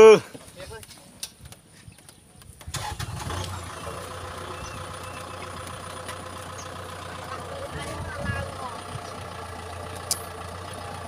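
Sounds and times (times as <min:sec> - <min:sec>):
tractor engine humming: 0:02.6 - 0:11.0.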